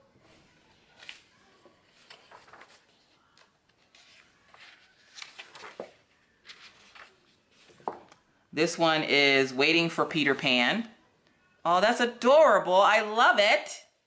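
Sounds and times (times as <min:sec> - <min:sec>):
paper pages rustling: 0:00.2 - 0:08.3.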